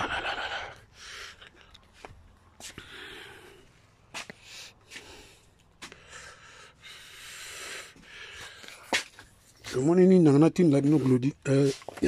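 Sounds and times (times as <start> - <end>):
person breathing: 0.0 - 9.3.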